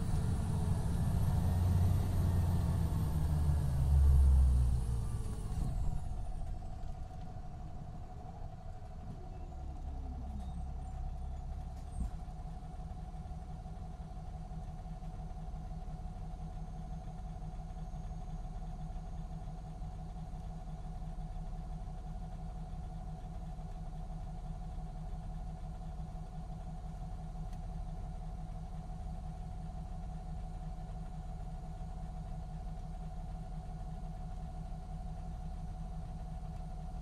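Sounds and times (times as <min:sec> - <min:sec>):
engine whine: 0:00.0 - 0:07.3
diesel engine rumble: 0:00.0 - 0:37.0.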